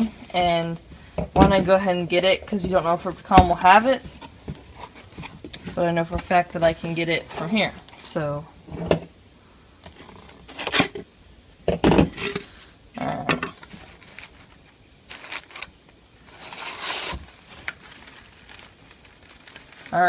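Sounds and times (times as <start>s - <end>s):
cloth rustling: 13.6s - 20.0s.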